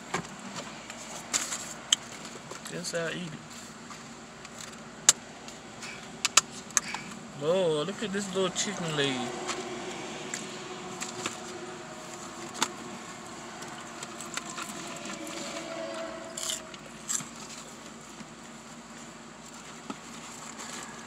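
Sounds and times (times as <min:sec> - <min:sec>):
low steady hum: 0:00.0 - 0:21.0
rummaging in paperboard box: 0:16.9 - 0:21.0.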